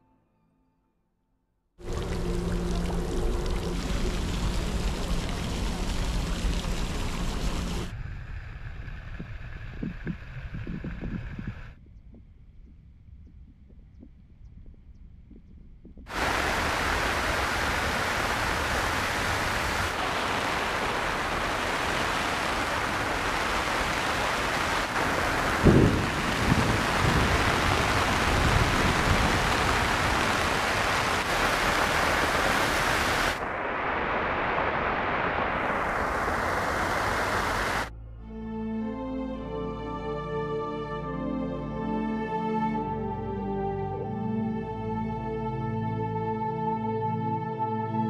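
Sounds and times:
heavy rain pouring: 1.8s - 11.7s, 16.1s - 37.9s
thunder rumbling: 1.9s - 37.9s.

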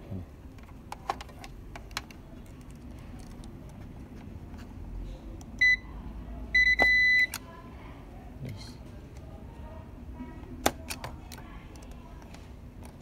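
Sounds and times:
multimeter continuity beeps: 5.6s - 5.9s, 6.5s - 7.4s.

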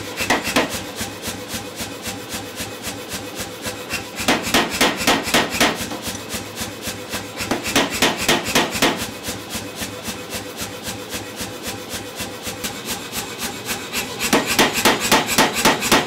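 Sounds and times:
power hammer heavy blows: 0.0s - 1.1s, 3.6s - 6.1s, 7.0s - 9.2s, 14.0s - 16.0s.

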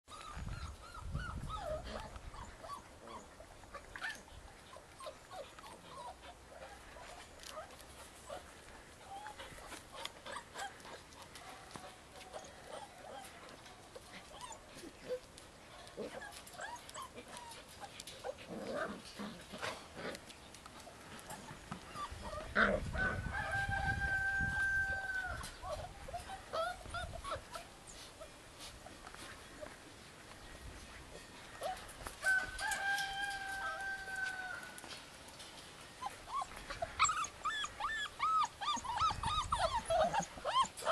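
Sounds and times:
puppies whimpering: 0.1s - 6.8s, 12.3s - 19.1s, 21.2s - 23.3s, 24.5s - 28.4s, 36.0s - 40.9s.

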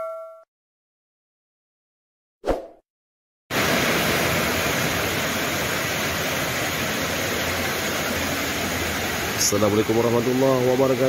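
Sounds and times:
heavy rain hissing: 3.5s - 11.0s.

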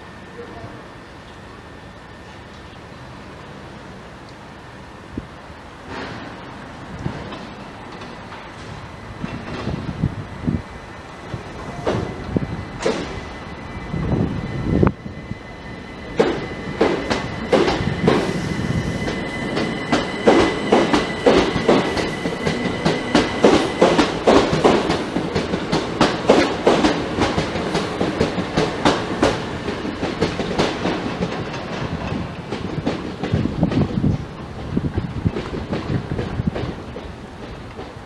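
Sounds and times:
train rumble: 0.0s - 38.0s
train wheels clicking over rail joints: 5.8s - 10.1s, 11.3s - 13.3s, 16.0s - 38.0s.

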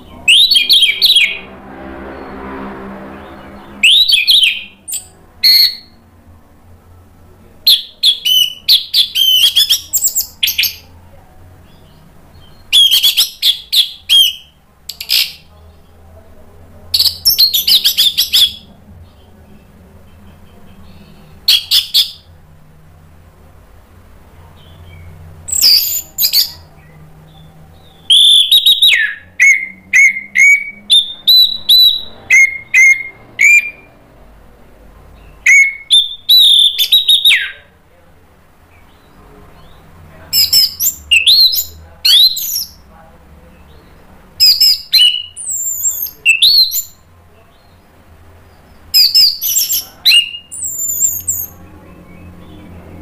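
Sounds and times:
thrush singing whistled phrases: 0.2s - 1.5s, 3.6s - 6.0s, 7.7s - 10.8s, 12.4s - 15.4s, 17.0s - 18.7s, 20.9s - 22.3s, 24.9s - 26.7s, 28.0s - 34.0s, 35.4s - 37.6s, 40.4s - 42.8s, 44.4s - 47.1s, 48.9s - 51.6s.

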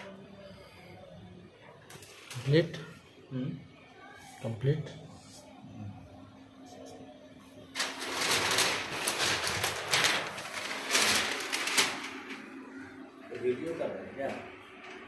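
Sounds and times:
paper rustling and crackling: 1.9s - 2.7s, 7.7s - 15.0s.

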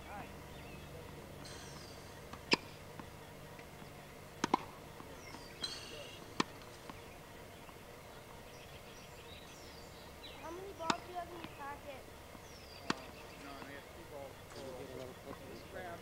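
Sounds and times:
birds chirping: 0.0s - 16.0s
tennis ball pocks: 4.4s - 7.0s, 10.8s - 11.6s, 12.3s - 13.8s.

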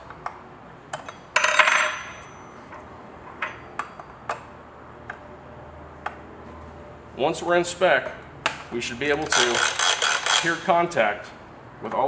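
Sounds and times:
metallic clatter with ring: 1.0s - 4.2s.

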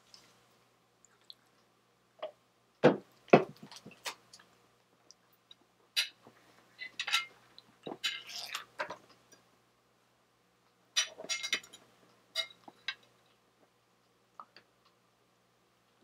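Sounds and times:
chewing: 1.0s - 1.7s.

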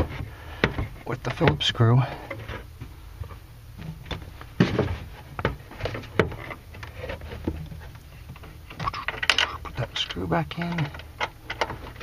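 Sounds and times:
hands clicking and knocking parts: 4.1s - 12.0s.

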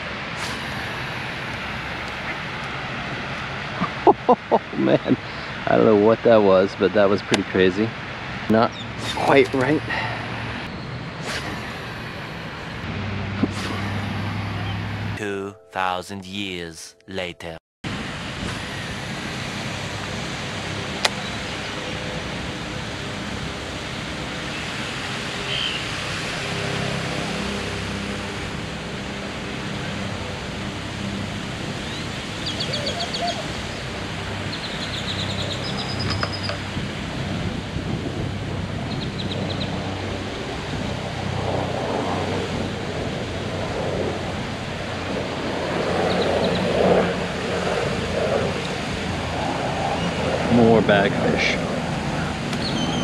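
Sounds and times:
wind: 0.0s - 15.4s, 17.9s - 53.0s.

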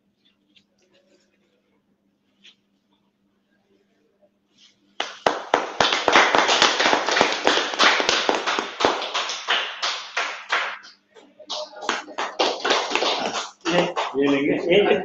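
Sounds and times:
people clapping: 5.0s - 15.0s.

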